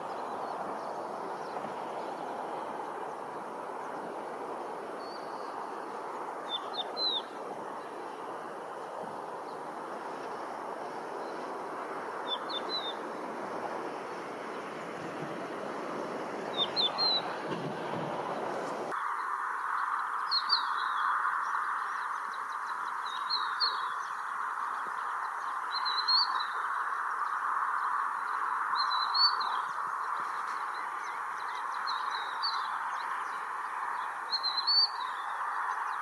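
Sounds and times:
steady background hiss: 0:00.0 - 0:36.0
lark whistled calls: 0:16.5 - 0:17.4, 0:19.0 - 0:32.8, 0:34.3 - 0:35.7.

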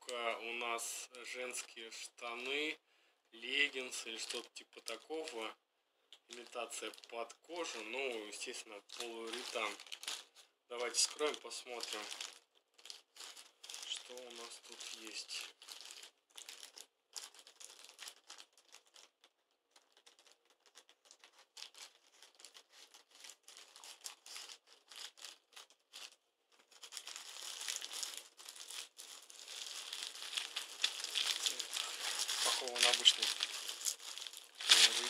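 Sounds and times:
plastic mailer bag crinkling: 0:06.3 - 0:35.0
scissors cutting plastic: 0:34.6 - 0:35.0.

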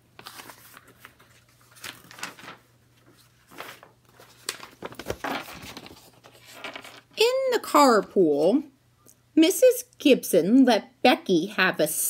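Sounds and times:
book pages turning: 0:00.1 - 0:07.2.

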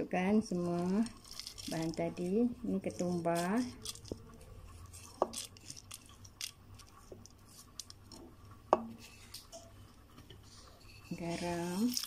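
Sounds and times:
seeds rustling and clicking: 0:00.5 - 0:08.2, 0:10.8 - 0:12.0.

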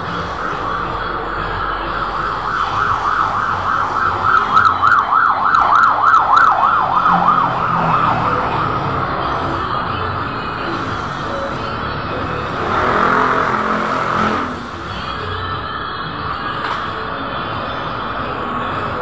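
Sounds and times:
siren yelping: 0:00.8 - 0:09.6.

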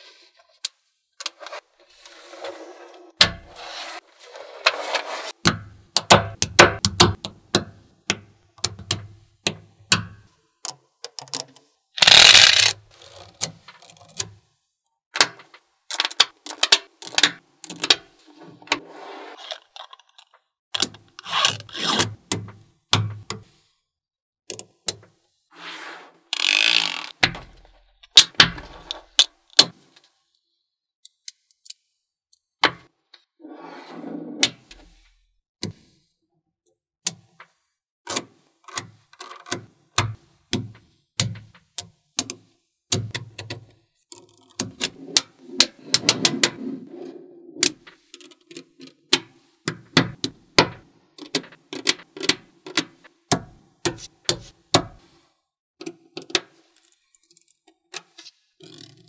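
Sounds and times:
magnetic balls clicking together: 0:12.0 - 0:12.8
balls rolling and rattling: 0:12.0 - 0:13.2.

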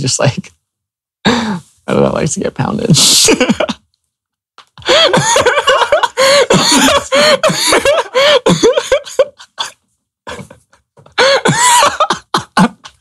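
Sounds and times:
young man laughing hard: 0:04.8 - 0:13.0.

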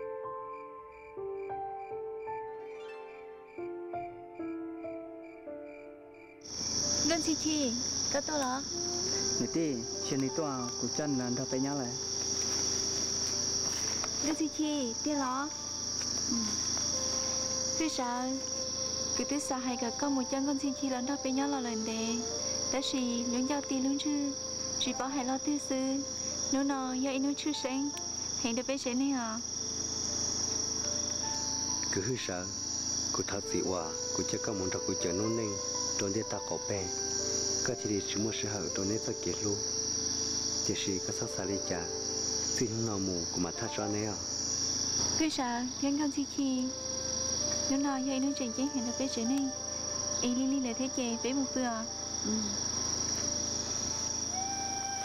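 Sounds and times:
crickets chirring: 0:00.0 - 0:55.0
voices: 0:07.0 - 0:13.3, 0:14.1 - 0:29.4, 0:45.2 - 0:52.6.

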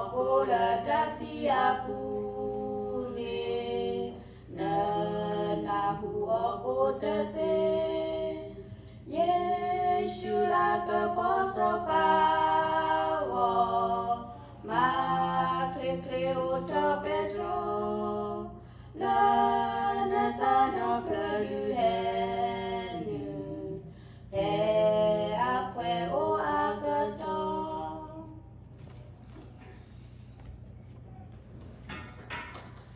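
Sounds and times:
women singing a hymn unaccompanied: 0:00.0 - 0:28.6.

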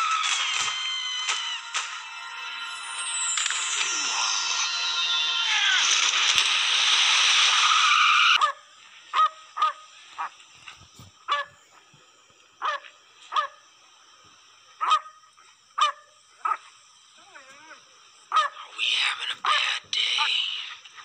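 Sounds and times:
dog barking: 0:09.2 - 0:10.3.

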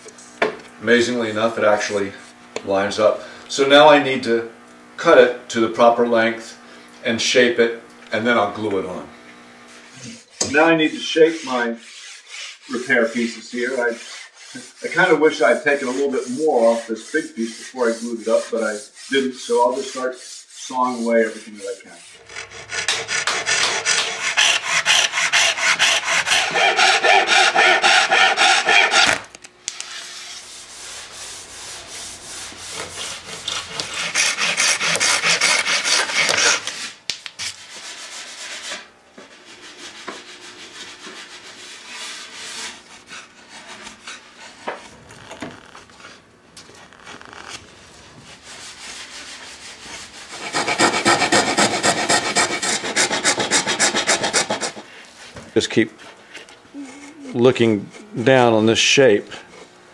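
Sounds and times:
handsaw cutting wood: 0:09.7 - 0:37.0, 0:37.6 - 0:45.0, 0:48.3 - 0:54.9
file rasping wood: 0:10.0 - 0:29.2, 0:29.8 - 0:37.0, 0:37.7 - 0:44.9, 0:48.4 - 0:54.9.

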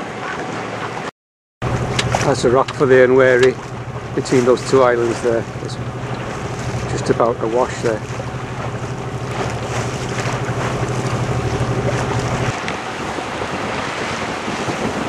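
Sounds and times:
water washing past hull: 0:00.0 - 0:15.0
diesel engine running: 0:01.6 - 0:12.5
wind buffeting microphone: 0:01.6 - 0:15.0.

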